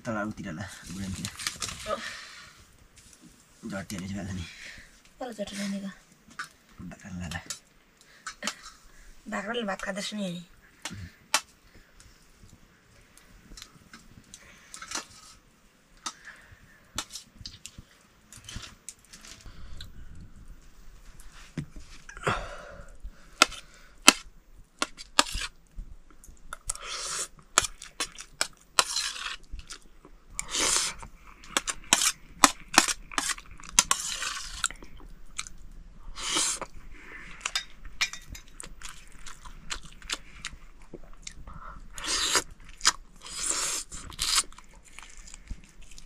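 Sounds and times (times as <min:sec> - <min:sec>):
person chewing and crunching: 0:26.4 - 0:46.0.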